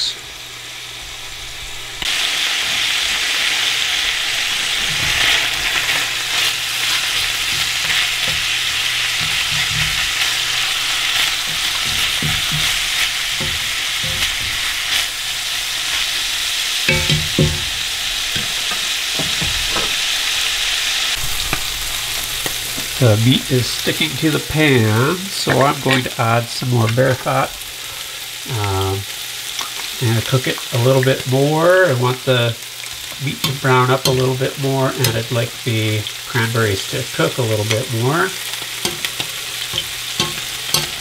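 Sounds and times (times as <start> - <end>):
meat sizzling in a skillet: 0.0 - 41.0
wooden spoon scraping a pan: 4.5 - 20.4
spoon knocking against pan: 7.4 - 14.7, 16.9 - 20.0, 38.8 - 41.0.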